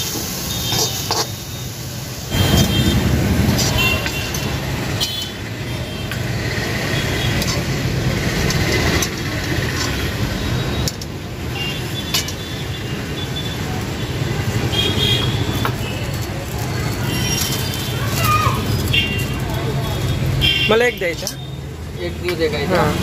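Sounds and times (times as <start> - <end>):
ladle scraping a wok: 0.0 - 1.6, 2.3 - 5.4, 6.2 - 13.1, 16.1 - 19.2
street noise rumble: 0.0 - 23.0.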